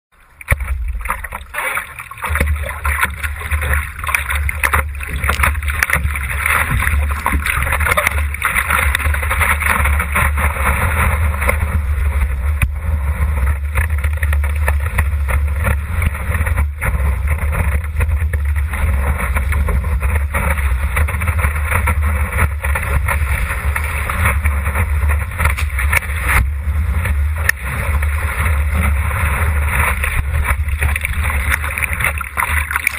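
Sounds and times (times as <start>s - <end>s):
water rushing and splashing: 0.2s - 32.9s
wind rumble on microphone: 0.2s - 32.9s.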